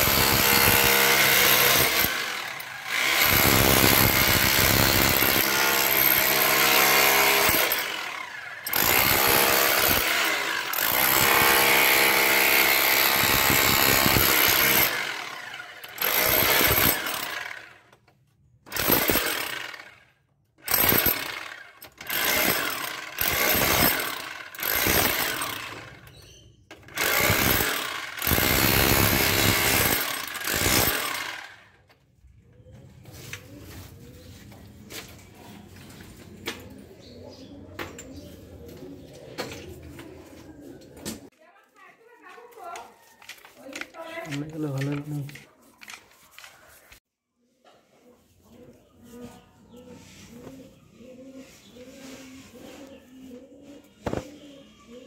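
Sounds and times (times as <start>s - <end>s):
electric chipping hammer chiselling brick: 0.0s - 31.9s.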